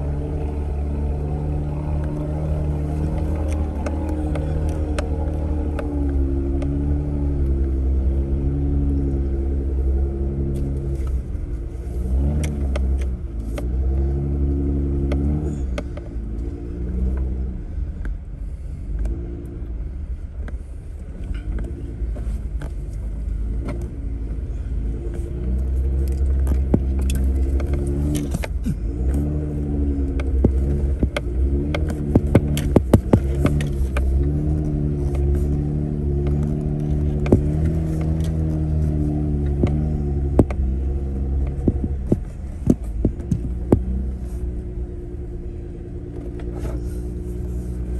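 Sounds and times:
engine revving at low speed: 0.0 - 47.9
sharp clicks and knocks: 25.4 - 29.3, 30.0 - 44.6.

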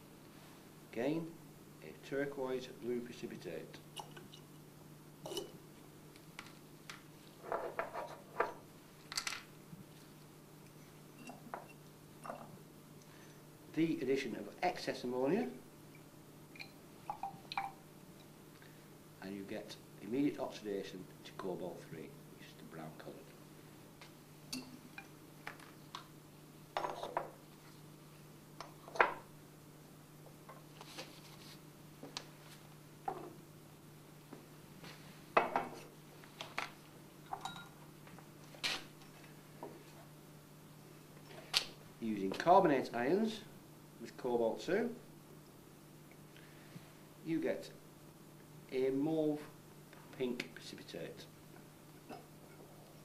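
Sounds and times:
glass test tubes clinking: 16.6 - 17.8, 37.3 - 37.8.

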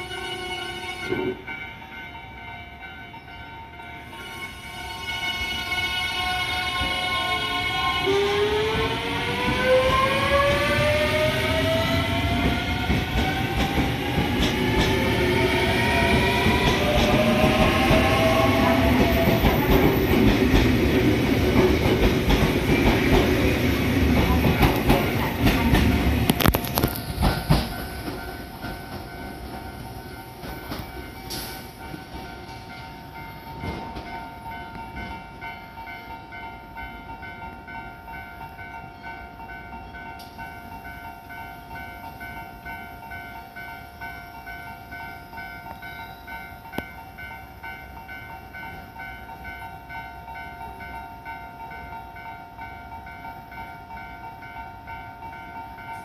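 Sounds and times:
electric train motors whining: 4.0 - 29.0
clacks over rail joints: 12.3 - 15.1, 24.1 - 29.7.

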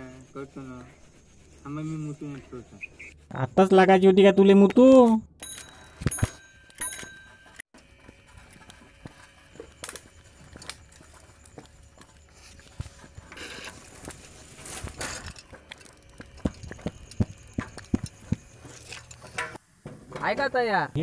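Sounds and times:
rustling through undergrowth: 8.0 - 17.1.

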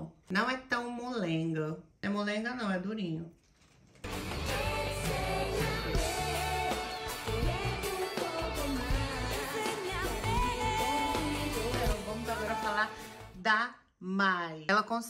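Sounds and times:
pop song with singing: 4.1 - 13.5.

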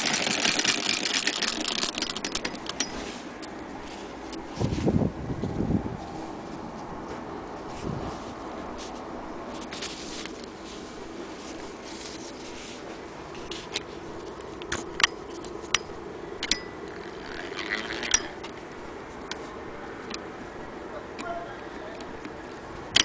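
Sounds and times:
sewing machine metal clicks: 0.0 - 3.0
steady background hum: 0.0 - 23.0
metal scrape: 2.0 - 5.0.

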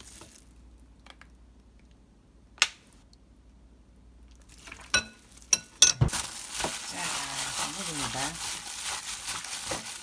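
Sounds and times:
metal spoon clinking glass bowl: 4.9 - 6.0.

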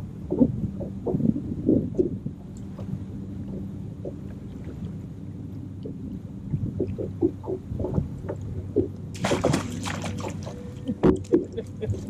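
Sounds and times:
boat low hum: 0.0 - 12.0
fish splashing at surface: 9.2 - 10.6.

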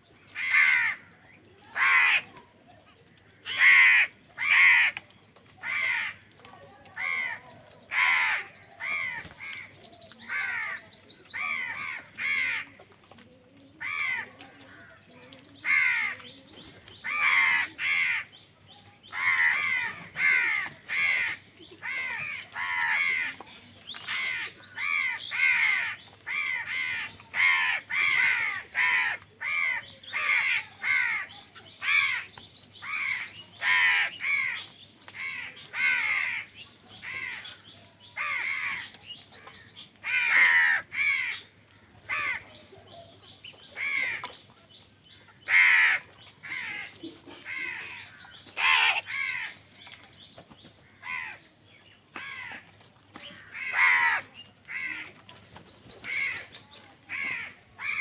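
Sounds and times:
crows cawing: 0.3 - 2.3, 3.3 - 5.0, 5.6 - 6.4, 7.0 - 12.8, 13.8 - 16.2, 17.0 - 18.3, 19.1 - 23.4, 24.1 - 37.6, 38.2 - 38.9, 40.0 - 42.5, 43.8 - 44.3, 45.4 - 49.6, 50.8 - 51.4, 52.1 - 55.2, 56.0 - 58.0.

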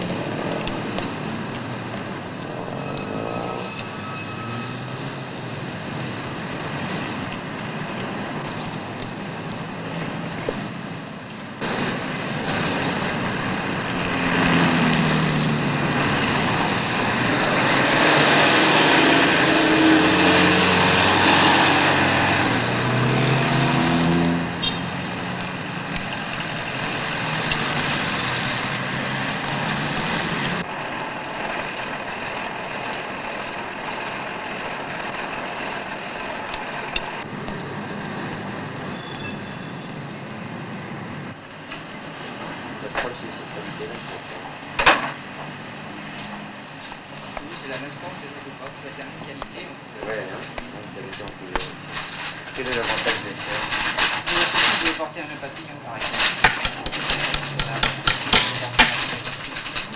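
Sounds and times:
city street traffic: 0.0 - 59.9.

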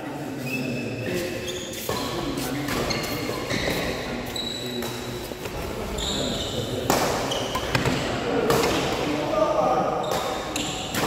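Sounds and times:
shoes squeaking on court floor: 0.4 - 8.1.

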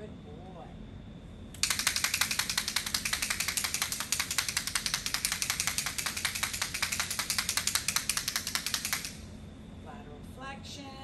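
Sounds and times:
plastic noisemaker rattling clicks: 1.6 - 9.2.

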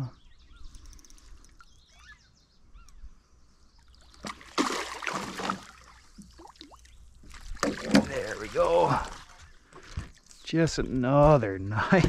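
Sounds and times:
fish splashing in water: 4.1 - 9.4.

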